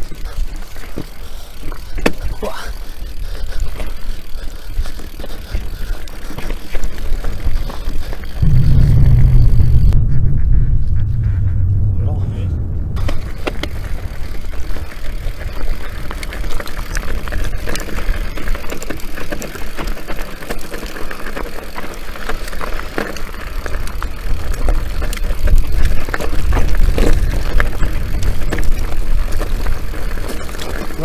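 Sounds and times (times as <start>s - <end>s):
bike rattling: 0.0s - 10.2s, 12.9s - 31.0s
tyres crunching over loose stones: 3.7s - 8.4s, 13.1s - 31.0s
low rumble: 8.4s - 16.4s.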